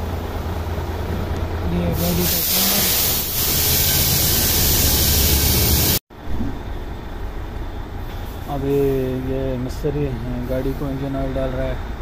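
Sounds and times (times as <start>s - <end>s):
loud steady hiss: 1.9s - 6.0s.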